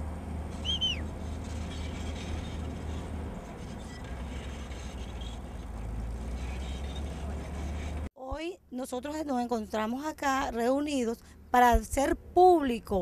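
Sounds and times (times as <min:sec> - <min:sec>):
bulldozer diesel engine rumble: 0:00.0 - 0:08.1
short high chirp: 0:00.6 - 0:01.0.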